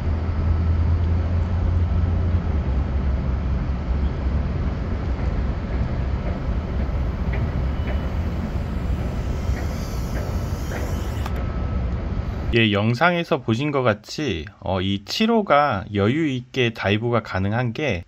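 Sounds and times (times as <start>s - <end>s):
drone propeller rumble: 4.2s - 12.6s.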